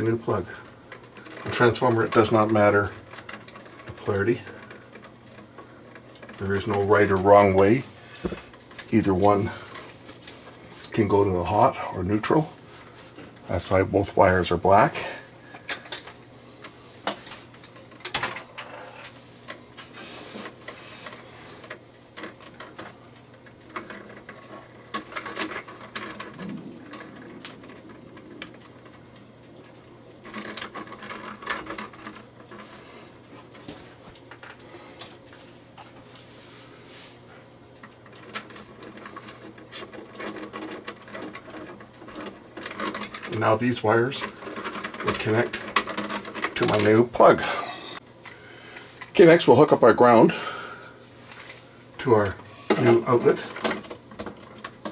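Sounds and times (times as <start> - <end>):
faint low hum: 0.0 - 54.7
wire handling clicks and scrapes: 0.0 - 54.9.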